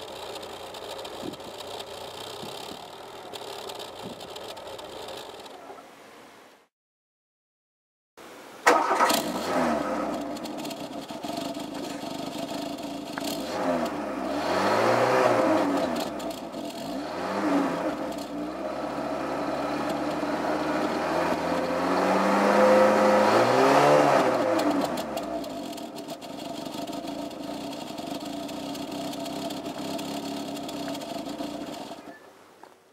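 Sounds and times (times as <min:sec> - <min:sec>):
car engine idling and revving: 0:00.0 - 0:05.8, 0:08.7 - 0:32.2.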